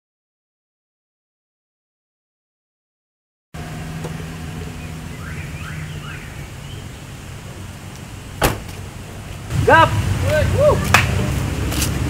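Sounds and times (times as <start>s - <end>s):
car engine idling: 3.6s - 11.7s
car door shutting: 8.4s - 8.9s.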